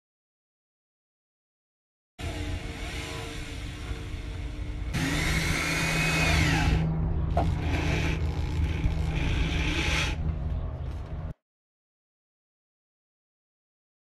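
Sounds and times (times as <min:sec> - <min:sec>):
power drill driving screws: 0:04.9 - 0:06.8, 0:07.4 - 0:10.2.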